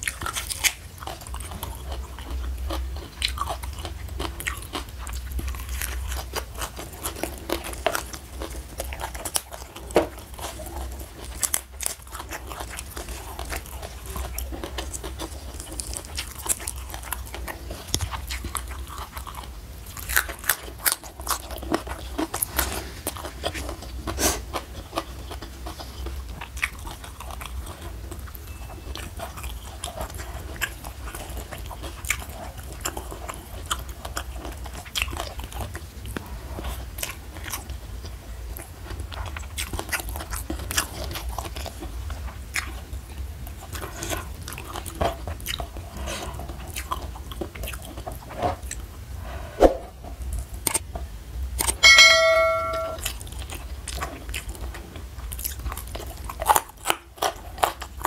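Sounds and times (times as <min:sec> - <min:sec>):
person chewing crunchy greens: 0:00.0 - 0:49.1, 0:50.2 - 0:50.9, 0:51.5 - 0:51.8, 0:53.0 - 0:58.0
faint low hum: 0:38.1 - 0:54.8.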